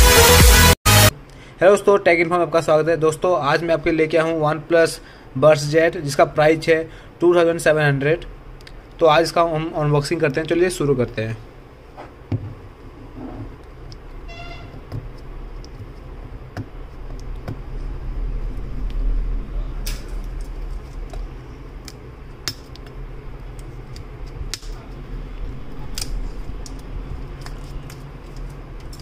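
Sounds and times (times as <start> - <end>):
brief tone: 14.2 - 14.8
steady low rumble: 15.0 - 29.0.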